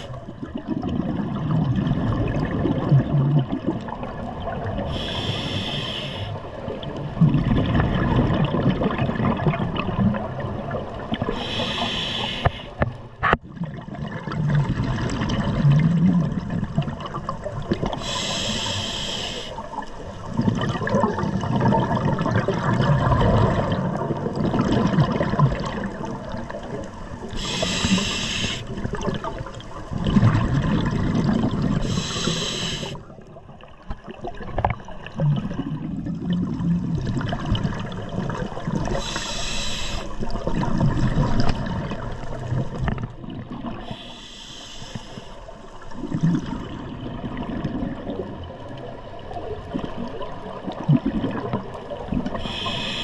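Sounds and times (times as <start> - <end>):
exhaled air bubbling: 0.0 - 53.0
hissing regulator inhales: 4.9 - 6.5, 11.3 - 12.8, 18.0 - 19.7, 27.3 - 28.7, 31.8 - 33.0, 38.9 - 40.2, 43.8 - 45.6, 52.4 - 53.0.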